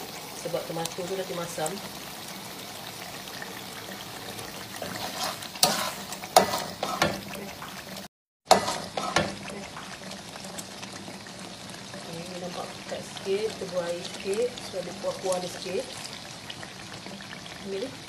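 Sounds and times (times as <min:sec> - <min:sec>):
paste sizzling in a pan: 0:00.0 - 0:18.0
metal spatula scraping pan: 0:04.7 - 0:07.4, 0:08.5 - 0:09.4.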